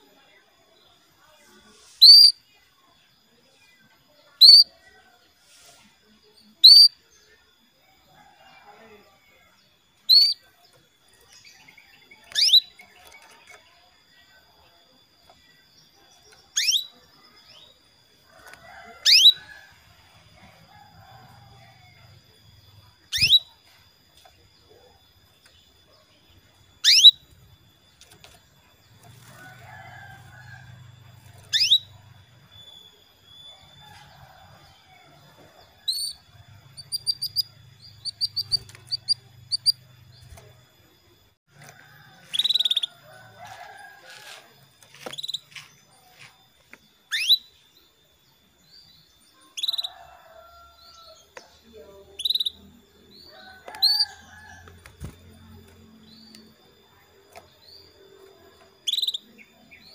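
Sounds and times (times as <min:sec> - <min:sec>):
canary call notes: 0:26.8 - 0:27.2.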